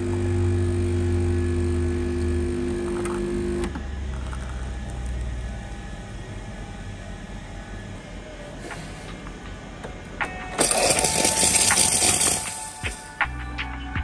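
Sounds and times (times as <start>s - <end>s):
espresso machine pump humming: 0.0s - 8.5s, 10.6s - 13.1s.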